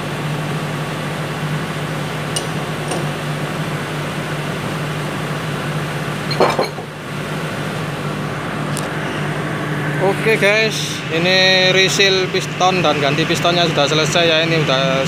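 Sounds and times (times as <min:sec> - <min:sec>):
mechanical hum: 0:00.0 - 0:15.0
metal part clunking on workbench: 0:06.3 - 0:06.9.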